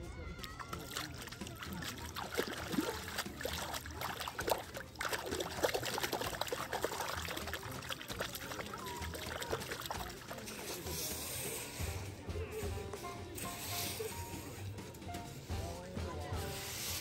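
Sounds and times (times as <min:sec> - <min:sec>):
water trickling: 0:00.4 - 0:10.6
hand splashing water: 0:00.4 - 0:11.0.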